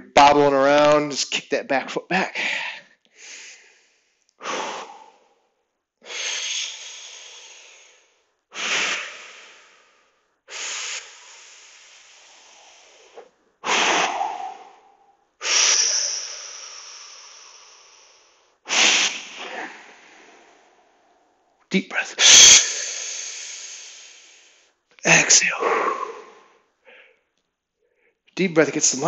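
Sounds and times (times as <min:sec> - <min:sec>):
man breathing forcefully: 0:02.4 - 0:21.0, 0:22.2 - 0:24.7, 0:25.4 - 0:27.2.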